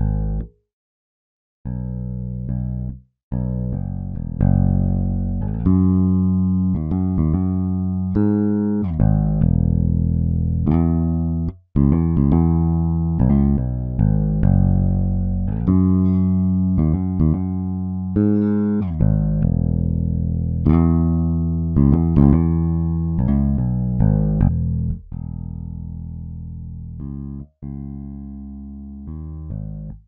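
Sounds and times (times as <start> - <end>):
electric bass line: 0.0 - 0.5, 1.7 - 30.0.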